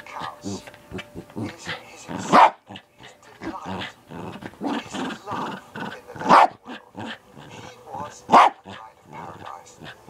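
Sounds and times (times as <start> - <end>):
small dog growling: 0.2 - 10.0
dog barking: 2.2 - 2.7, 6.2 - 6.8, 8.3 - 8.8.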